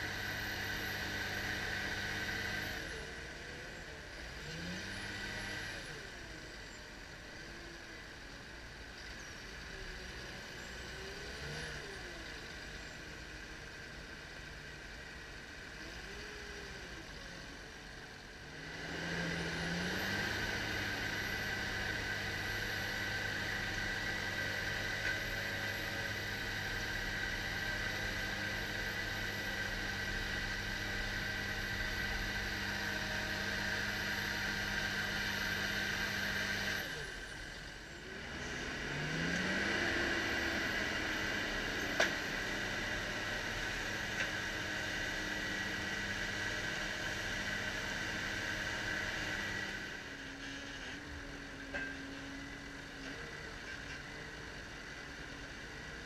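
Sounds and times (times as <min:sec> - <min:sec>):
diesel engine revving under load: 0:00.0 - 0:08.5, 0:09.4 - 0:12.8, 0:13.4 - 0:56.0.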